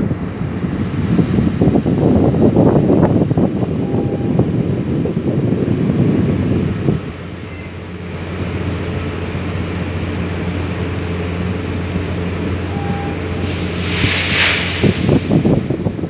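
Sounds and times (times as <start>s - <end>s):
wind buffeting microphone: 0.0s - 16.0s
ship machinery droning: 7.3s - 15.4s.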